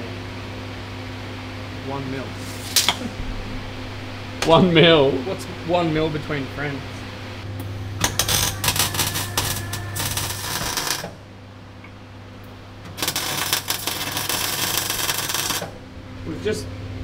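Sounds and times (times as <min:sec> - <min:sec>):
steady electrical hum: 0:00.0 - 0:17.0
welder arc crackling: 0:07.5 - 0:11.4, 0:12.4 - 0:15.8.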